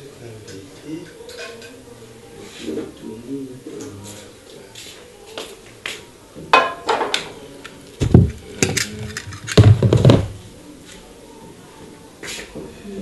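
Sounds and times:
kitchen things clattering: 1.1 - 1.8
heavy thumps: 8.0 - 10.4.

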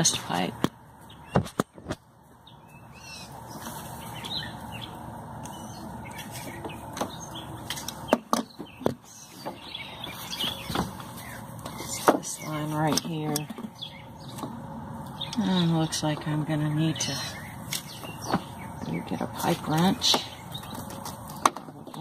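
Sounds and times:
birds chirping: 0.0 - 22.0
handling knocks and clicks: 19.7 - 22.0.

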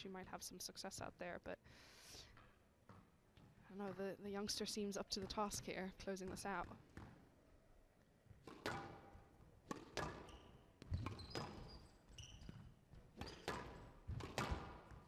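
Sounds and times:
shoes squeaking on court: 2.3 - 7.3, 8.2 - 15.0
squash ball smacks: 8.4 - 11.7, 13.2 - 15.0.

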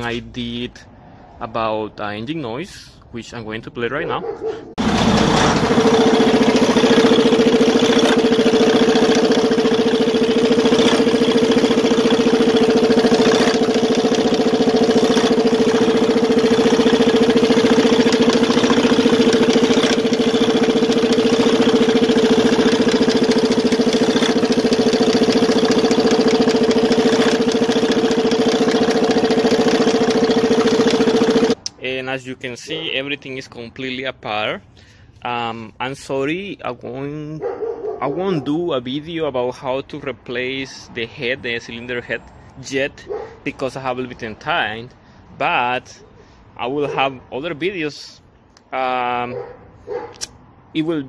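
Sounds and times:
diesel engine idling: 4.8 - 31.6.

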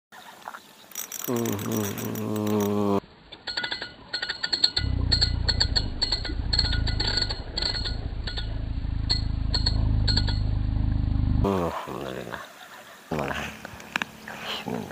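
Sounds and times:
fishing reel clicking: 0.9 - 2.8, 3.5 - 8.5
steady low hum: 1.4 - 11.7.

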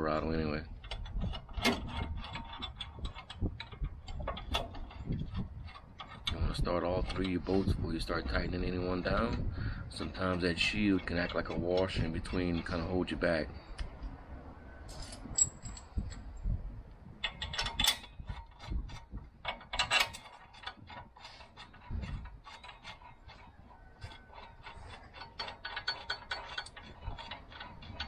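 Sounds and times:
light metal clinks: 14.9 - 16.2
hand ratchet clicking: 17.2 - 28.0.

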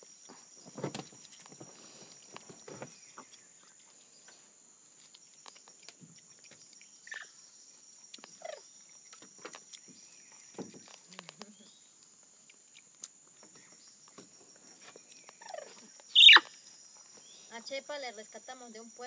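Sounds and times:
high-pitched insect drone: 0.0 - 11.8, 13.5 - 19.0
monkey chewing and smacking: 4.8 - 7.0, 7.8 - 15.7
monkey squeaks: 15.4 - 16.6.

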